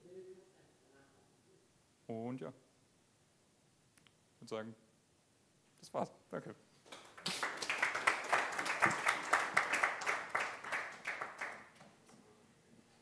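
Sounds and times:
audience applauding: 6.9s - 11.9s.

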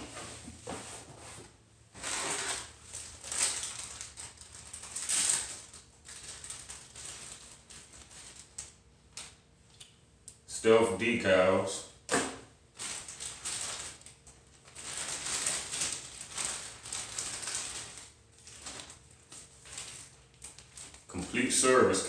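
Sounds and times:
packaging rustling and crinkling: 2.0s - 9.4s, 12.7s - 21.2s.

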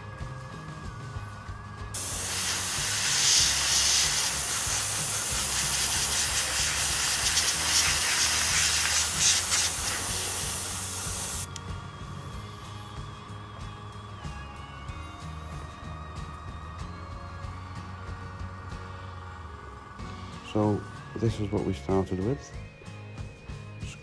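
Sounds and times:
airbrush air hiss: 2.0s - 11.6s.

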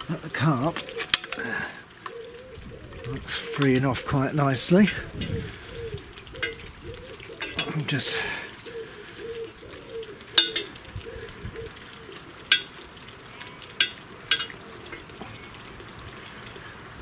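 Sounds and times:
bird whistling: 8.7s - 10.7s.

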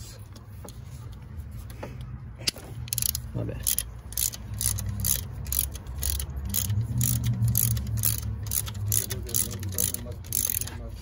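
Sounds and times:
ratchet wrench clicking: 2.8s - 10.8s.

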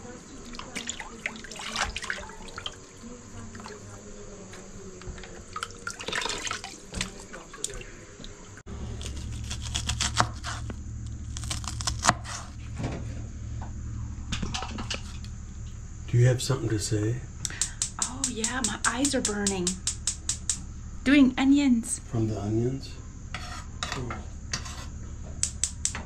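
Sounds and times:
low steady hum: 0.0s - 26.0s
water sloshing in a plastic basin: 0.3s - 8.6s
knife chopping on wooden board: 9.4s - 10.7s.

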